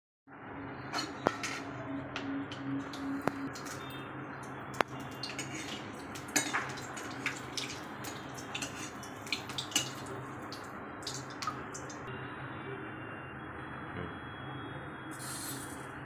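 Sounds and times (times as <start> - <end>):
ladle scraping and clinking pan: 1.0 - 1.7, 5.0 - 10.1
chillies sizzling in hot oil: 4.8 - 12.0.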